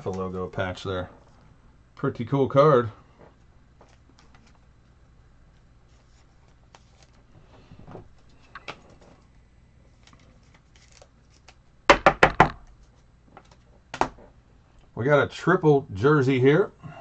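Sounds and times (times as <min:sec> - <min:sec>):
cards clicking and rustling: 0:03.8 - 0:04.7, 0:05.5 - 0:07.3, 0:09.9 - 0:11.6, 0:12.7 - 0:13.7.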